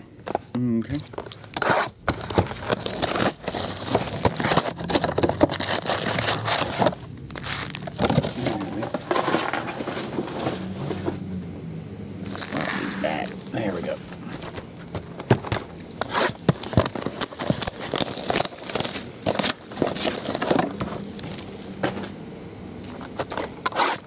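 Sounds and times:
shrink wrap crinkling and tearing: 0:01.3 - 0:08.8, 0:16.0 - 0:21.7
cardboard boxes scraping on table: 0:01.6 - 0:11.3, 0:14.4 - 0:18.0, 0:23.0 - 0:24.0.

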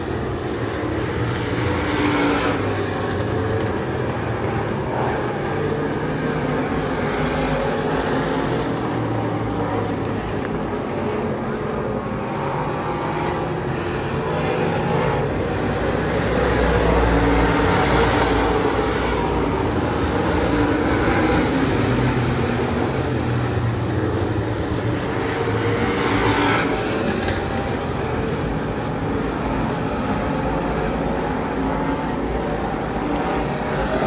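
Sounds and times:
race car engines droning: 0:00.0 - 0:34.0.

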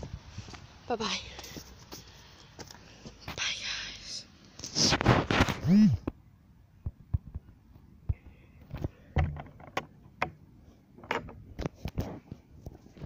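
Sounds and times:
dull thump: 0:09.1 - 0:10.4.

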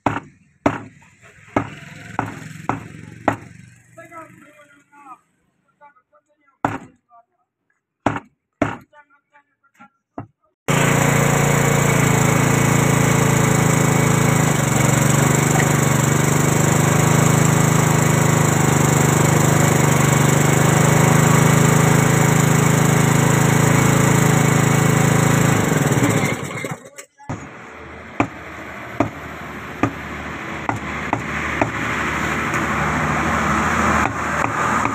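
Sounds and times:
blade chopping meat on wood: 0:00.0 - 0:03.6, 0:06.7 - 0:06.9, 0:08.1 - 0:08.9, 0:29.8 - 0:30.0, 0:30.7 - 0:31.8, 0:34.0 - 0:34.9
small engine running: 0:01.5 - 0:04.1, 0:10.7 - 0:34.9.

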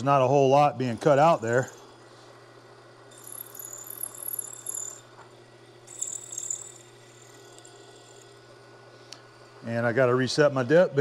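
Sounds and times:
milling machine humming: 0:00.0 - 0:11.0
high-pitched cutting squeal: 0:03.1 - 0:05.1, 0:05.9 - 0:08.4.

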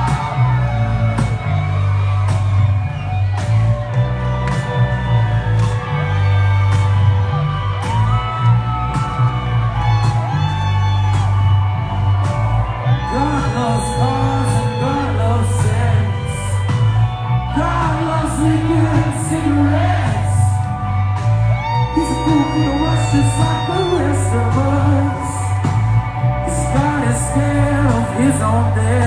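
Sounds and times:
rock band playing: 0:00.0 - 0:29.0
man singing lead vocal: 0:12.9 - 0:20.8, 0:21.8 - 0:25.8, 0:26.4 - 0:29.0.

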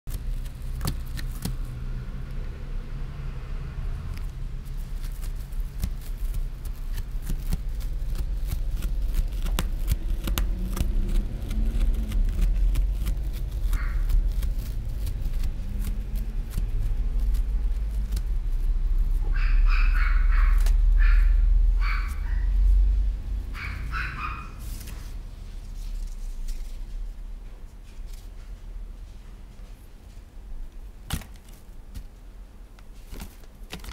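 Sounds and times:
kitten scrambling on artificial turf: 0:04.6 - 0:28.6
dog barking: 0:19.3 - 0:22.6, 0:23.5 - 0:24.6.

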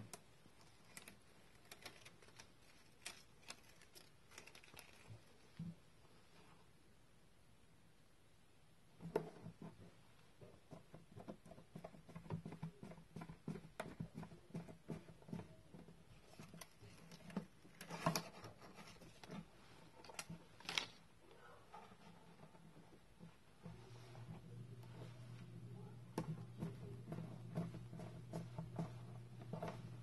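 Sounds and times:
small taps and crackles: 0:00.0 - 0:05.8, 0:09.0 - 0:21.0, 0:21.7 - 0:30.0
paper backing peeling: 0:00.1 - 0:05.6.

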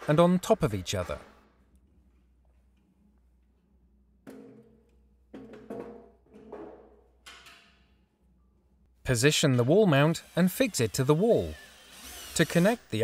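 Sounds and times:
hollow knocks of housings set down: 0:04.2 - 0:07.8.

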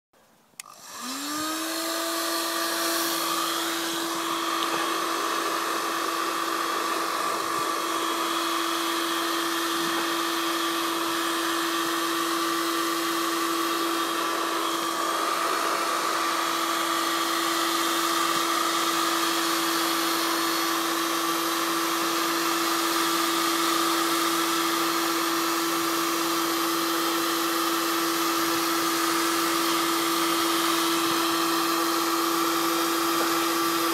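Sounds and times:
heat gun fan whine: 0:00.5 - 0:33.9
heat gun switch click: 0:00.6 - 0:00.8
rush of hot air: 0:00.7 - 0:33.9.

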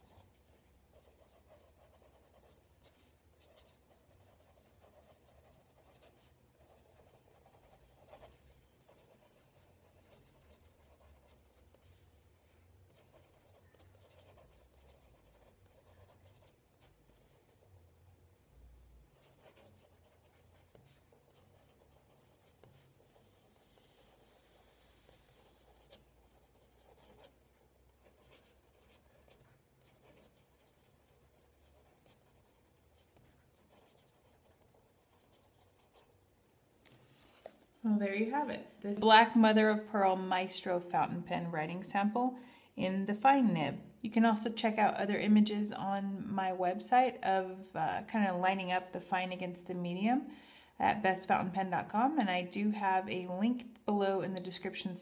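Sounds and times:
fountain pen scratching paper: 0:00.0 - 0:12.0, 0:12.9 - 0:16.9, 0:19.2 - 0:36.1.

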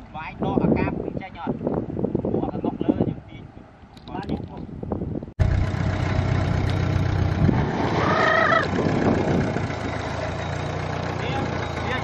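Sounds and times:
diesel engine running: 0:05.4 - 0:12.0.

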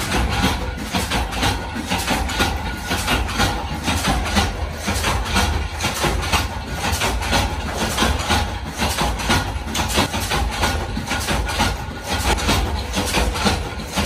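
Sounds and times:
factory machinery clattering: 0:00.0 - 0:14.0
low machinery drone: 0:00.0 - 0:14.0.

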